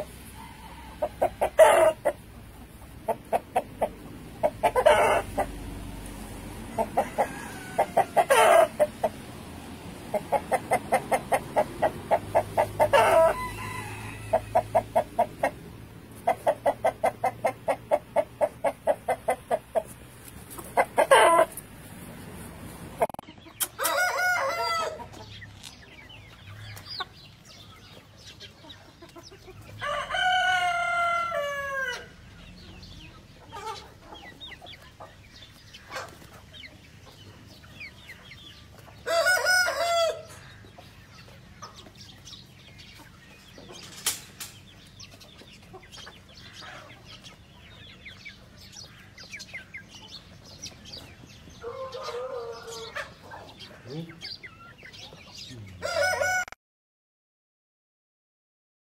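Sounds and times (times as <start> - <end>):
clucking: 0.0 - 5.7, 6.7 - 9.3, 10.0 - 13.4, 14.3 - 21.7, 22.9 - 24.1, 24.9 - 29.8, 32.7 - 39.3
roosters crowing: 0.0 - 25.5, 29.5 - 32.9, 37.4 - 42.9, 45.5 - 56.6
rooster squawk: 12.6 - 14.8, 23.6 - 25.0.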